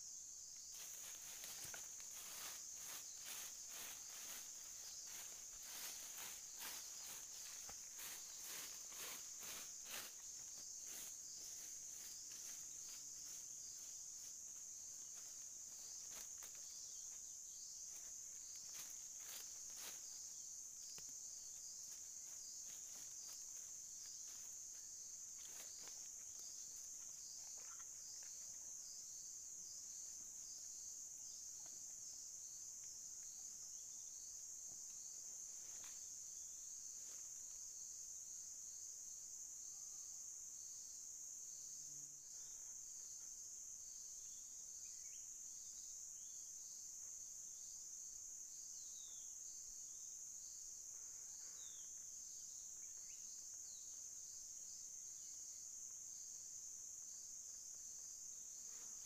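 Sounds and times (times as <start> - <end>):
insects chorus: 0.0 - 59.0
dry leaves and bamboo crackling: 0.7 - 13.4.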